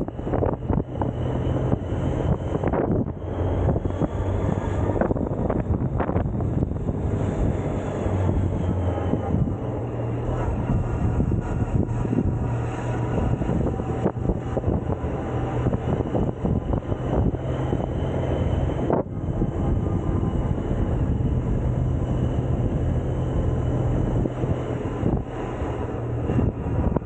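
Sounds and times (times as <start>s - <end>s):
road noise: 0.0s - 27.0s
scooter engine humming: 0.0s - 27.0s
wind noise: 0.0s - 27.0s.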